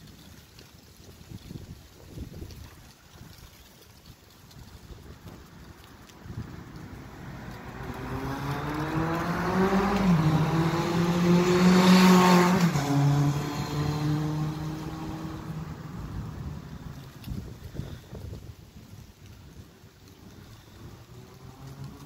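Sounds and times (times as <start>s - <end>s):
motor vehicle passing by: 6.2s - 18.0s, 20.1s - 22.0s.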